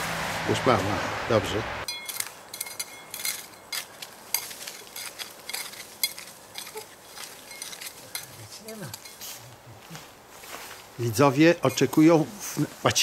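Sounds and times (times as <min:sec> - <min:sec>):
metal trowel scraping soil: 0:01.9 - 0:09.5.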